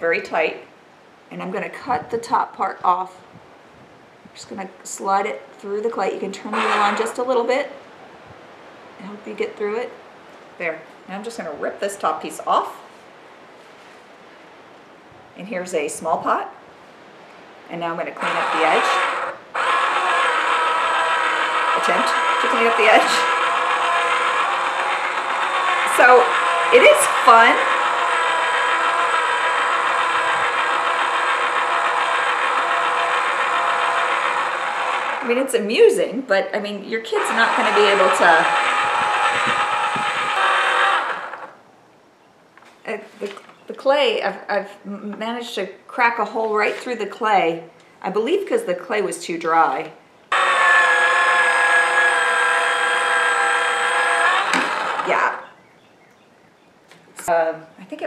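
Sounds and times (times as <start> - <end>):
small electric motor whine: 6.5 - 7.2, 18.2 - 35.3, 37.2 - 41.6, 50.3 - 55.6.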